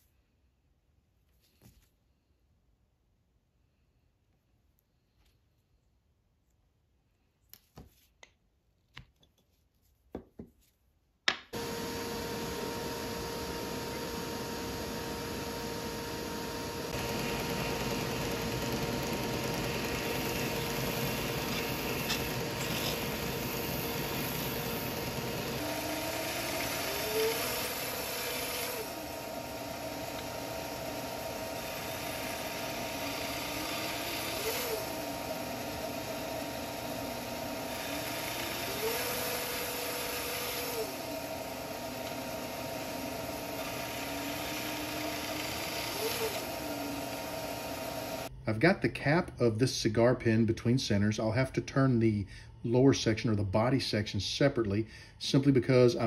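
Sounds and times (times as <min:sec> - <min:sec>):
band saw cutting: 0:11.5 - 0:48.3
disc sander running: 0:11.5 - 0:48.3.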